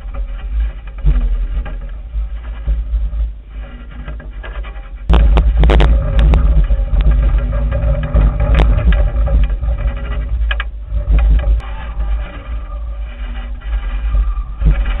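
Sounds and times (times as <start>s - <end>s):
sharp knocks and clicks: 0.0s - 11.6s
wind buffeting microphone: 5.0s - 15.0s.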